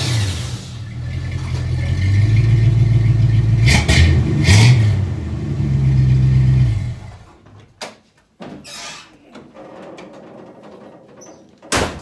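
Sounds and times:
pickup engine revving: 0.0s - 7.2s.

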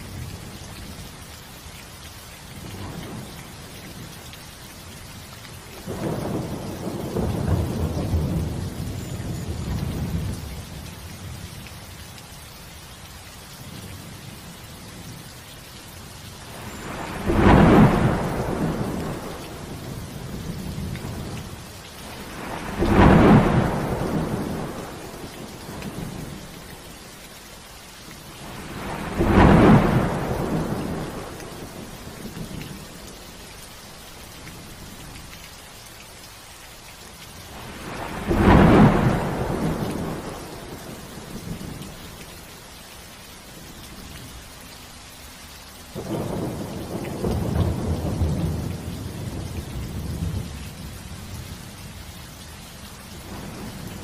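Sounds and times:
steady rain: 0.0s - 54.0s
thunder rumbling: 5.9s - 10.4s, 16.5s - 26.6s, 28.4s - 32.7s, 37.5s - 41.9s, 46.0s - 50.9s.

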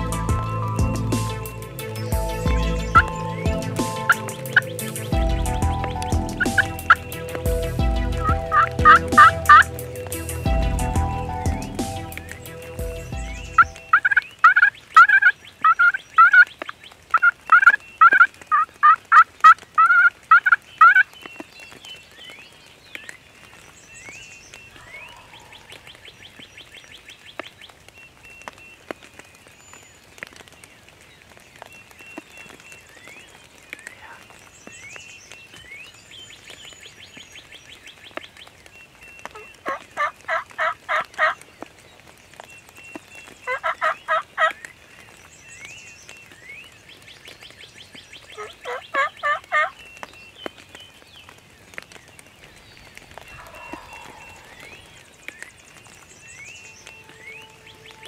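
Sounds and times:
turkey calling: 0.0s - 16.5s, 17.1s - 21.1s, 24.7s - 26.0s, 39.3s - 41.4s, 43.5s - 44.6s, 48.3s - 49.8s, 53.0s - 58.0s
faint songbird chirps: 20.6s - 40.3s, 41.2s - 58.0s.

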